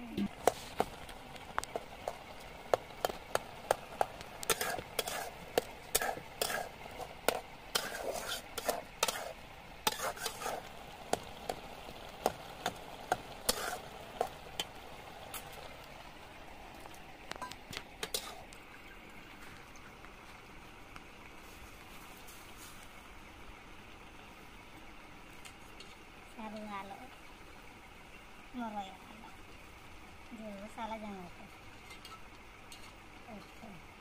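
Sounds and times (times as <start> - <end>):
greens sizzling: 0.0 - 34.0.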